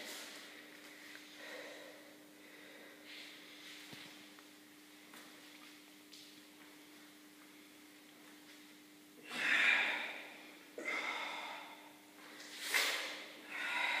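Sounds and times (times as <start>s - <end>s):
man breathing hard: 1.3s - 3.5s, 9.2s - 12.0s, 13.4s - 14.0s.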